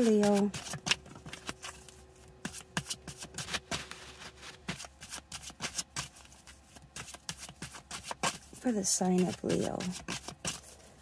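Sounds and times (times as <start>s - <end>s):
cards being shuffled: 0.0s - 6.3s.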